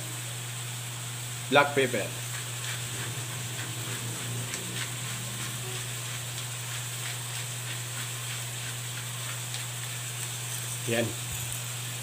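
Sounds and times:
meat frying in a pan: 0:00.0 - 0:12.0
low hum: 0:02.2 - 0:08.8.

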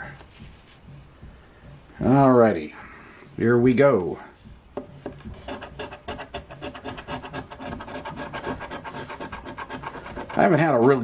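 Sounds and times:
scratch card rasping: 0:05.0 - 0:11.0.

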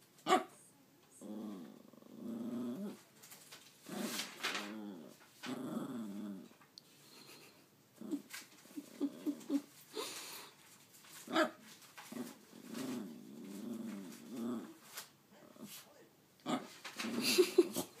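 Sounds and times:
dog grumbling moan: 0:01.2 - 0:03.0, 0:03.9 - 0:06.6, 0:08.0 - 0:09.7, 0:12.1 - 0:14.8.

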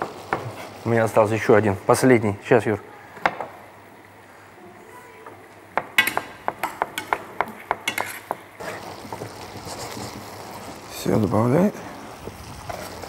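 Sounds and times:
stew sizzling in pan: 0:00.0 - 0:13.0.

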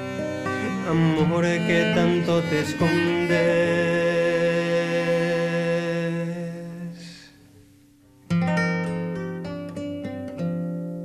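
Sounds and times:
guitar strummed and plucked: 0:00.0 - 0:05.2, 0:07.6 - 0:11.0
bowed viola da gamba note: 0:00.0 - 0:05.6.

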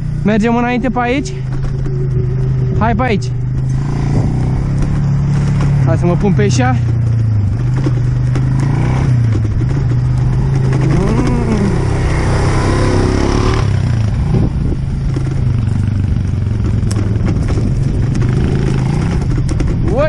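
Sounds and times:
motor drone: 0:00.0 - 0:05.8
wind on microphone: 0:00.8 - 0:05.9, 0:07.2 - 0:20.0.

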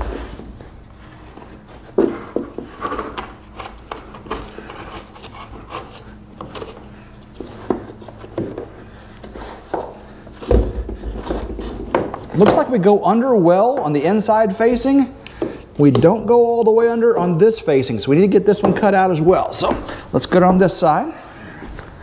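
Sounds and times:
wood knocking and scraping: 0:09.3 - 0:12.8.

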